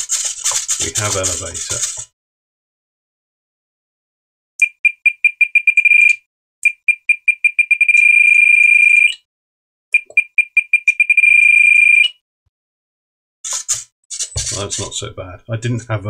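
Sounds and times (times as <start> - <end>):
transmitter beeping faster: 4.6 - 9.2, 10.0 - 12.1.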